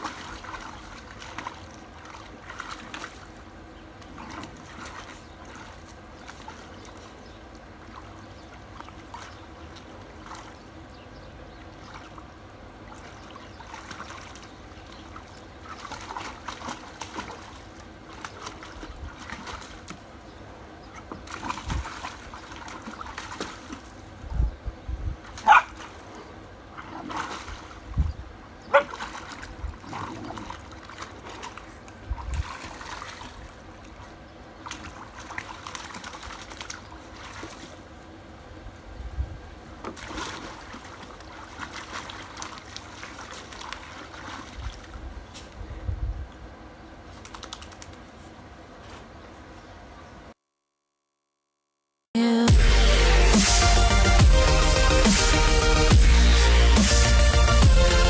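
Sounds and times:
puppy splashing in water: 0.0s - 24.3s, 25.2s - 38.0s, 39.7s - 45.6s, 47.0s - 48.2s.

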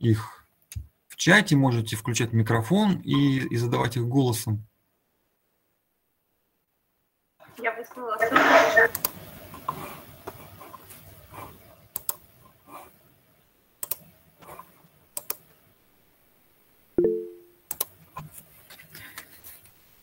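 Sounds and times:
keyboard and mouse clicks: 8.9s - 9.2s, 11.9s - 12.3s, 13.8s - 15.4s, 17.0s - 18.4s
notification chime: 17.0s - 17.6s.

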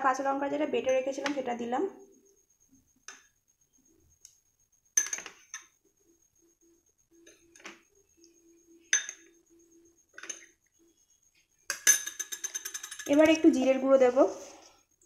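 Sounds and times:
spoon clinking against bowls: 8.9s - 9.4s, 10.2s - 10.6s, 11.7s - 13.5s.

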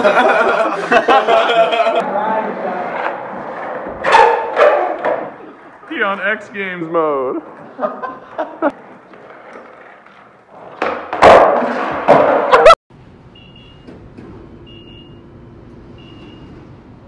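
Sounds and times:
skateboard rolling on concrete: 0.0s - 12.8s
skateboard impacts: 2.0s - 6.5s, 7.4s - 12.8s.

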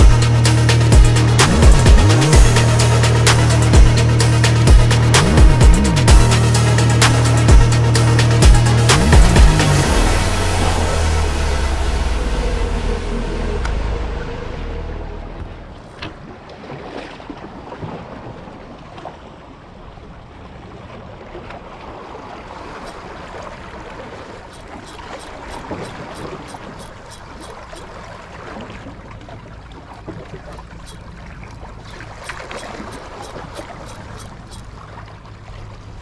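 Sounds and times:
water lapping and sloshing: 0.0s - 36.0s
light quick ticks: 31.9s - 34.7s.

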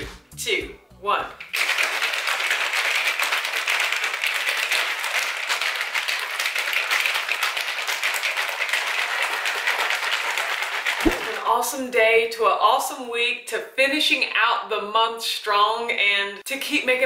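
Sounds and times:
plastic bottle shaken rattling: 1.4s - 11.4s.

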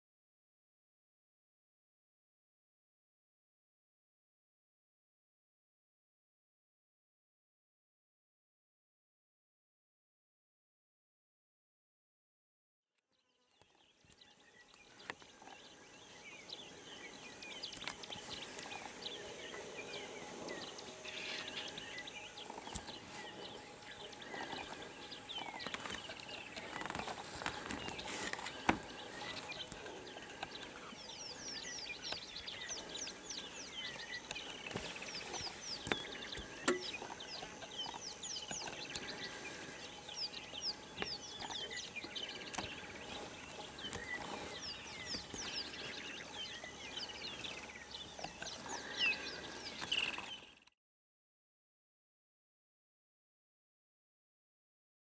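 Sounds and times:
birds chirping and calling: 13.6s - 50.7s.

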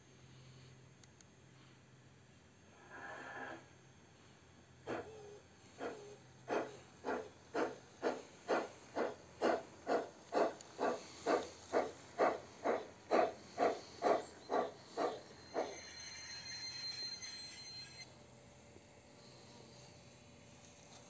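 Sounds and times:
faint steam hiss: 0.0s - 15.8s
model steam locomotive chuffing: 4.8s - 18.1s.

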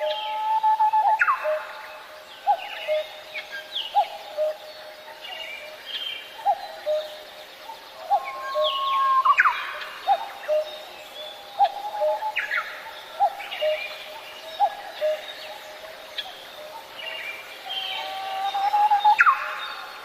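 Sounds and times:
birds chirping and whistling: 7.9s - 15.6s, 17.1s - 19.8s.

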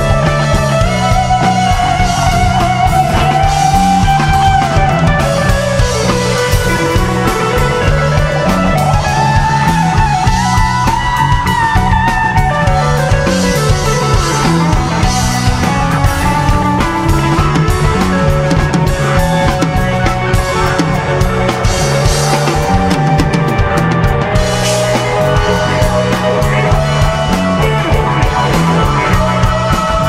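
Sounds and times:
bass: 0.0s - 30.0s
drum kit: 0.0s - 30.0s
electric guitar sliding lead notes: 0.0s - 30.0s
keyboards: 0.0s - 30.0s.

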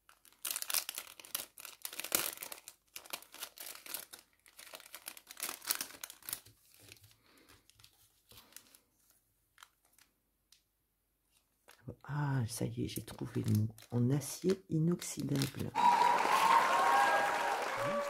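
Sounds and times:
packaging crinkling and tearing: 0.0s - 10.2s, 12.9s - 15.8s.

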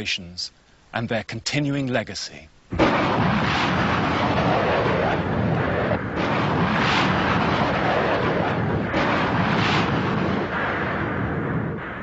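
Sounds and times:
explosions: 2.7s - 12.0s
heavy gunfire: 2.8s - 12.0s.

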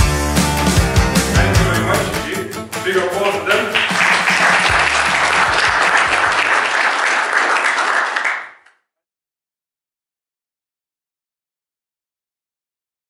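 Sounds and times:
audience applauding: 3.6s - 8.7s.

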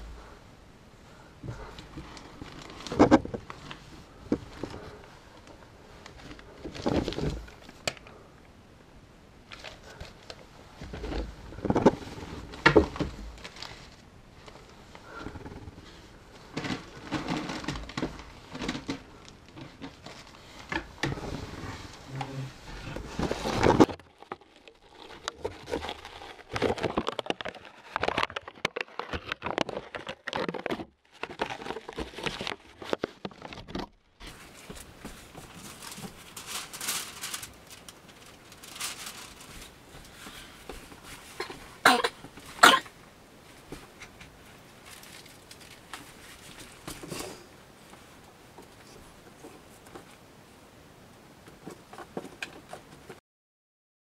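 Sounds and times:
newspaper rustling: 16.6s - 42.6s, 43.4s - 47.5s.

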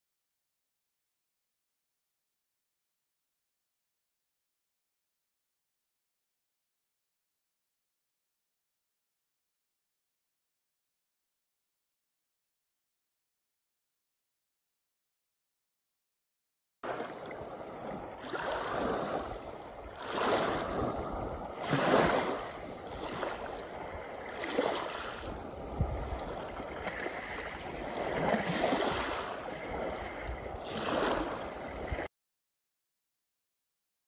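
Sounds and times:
small waves on pebble beach: 16.8s - 32.1s.

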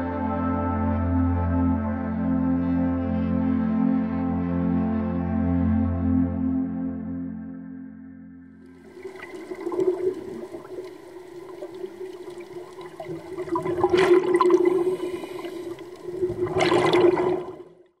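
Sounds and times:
air bubbling underwater: 8.8s - 17.9s.

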